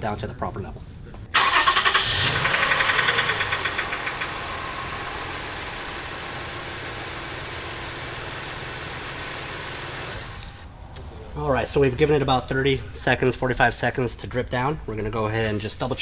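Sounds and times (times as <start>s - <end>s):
car engine idling: 1.4s - 10.6s.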